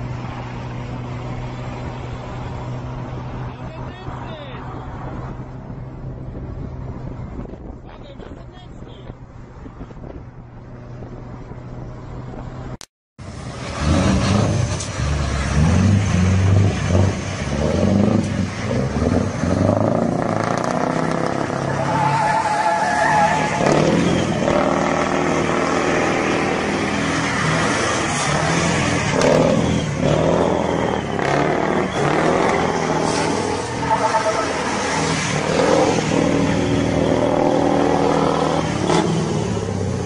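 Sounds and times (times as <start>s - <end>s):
diesel engine revving hard: 13.2s - 40.0s.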